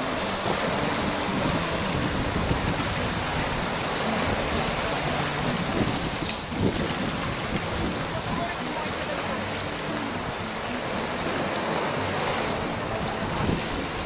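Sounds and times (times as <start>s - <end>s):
choppy sea water sloshing: 0.0s - 14.0s.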